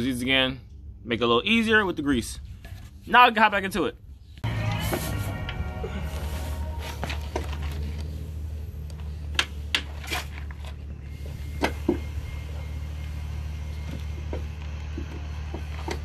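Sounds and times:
steady low hum: 3.9 - 16.0.

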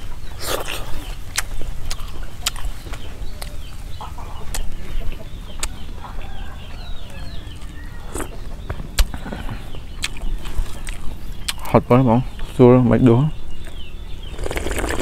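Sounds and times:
chickens clucking: 0.0 - 15.0
chewing and lip smacks: 0.4 - 5.8, 7.1 - 11.7.

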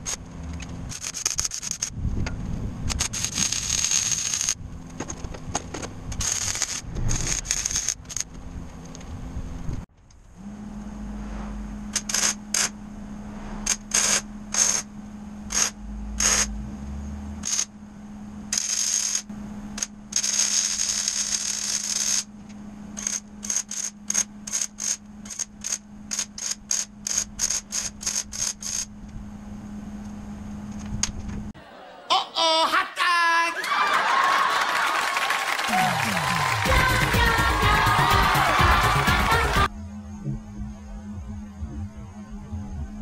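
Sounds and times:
steady low hum: 0.0 - 32.1, 36.3 - 43.0
welder arc crackle: 0.9 - 1.9, 2.9 - 4.6, 6.2 - 8.2, 18.6 - 22.3.

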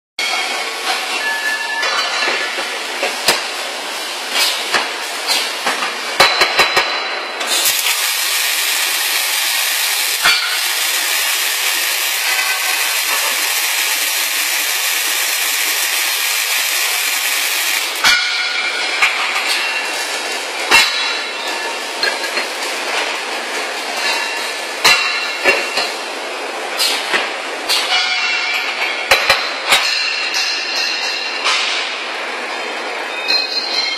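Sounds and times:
welding arc hissing: 7.5 - 18.2.

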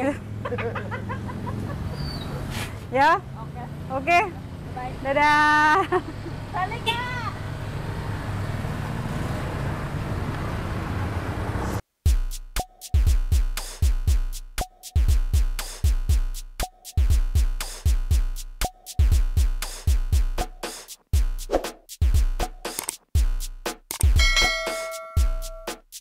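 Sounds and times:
outdoor background noise: 0.0 - 12.0
scooter engine pulling away: 7.4 - 11.8
electronic music with drum beat: 12.0 - 26.0.

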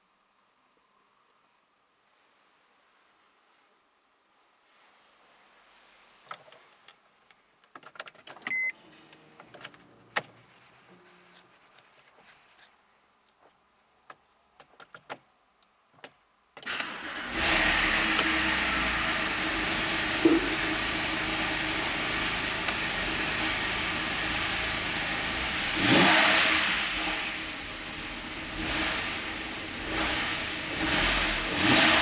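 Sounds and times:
key and dash clicks: 14.6 - 15.2
car engine starting and idling: 16.6 - 32.0
car engine revving: 17.0 - 32.0.

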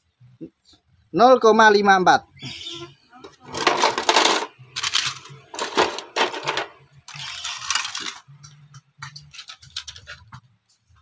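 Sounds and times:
circuit boards clattering: 3.3 - 10.3.

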